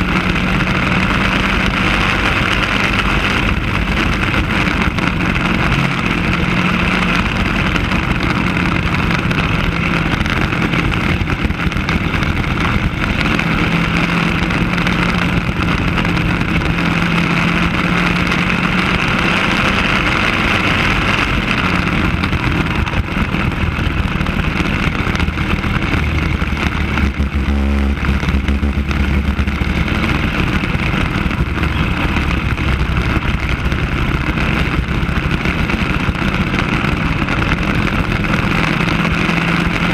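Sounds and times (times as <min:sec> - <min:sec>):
kart engine running: 0:00.0 - 0:39.9.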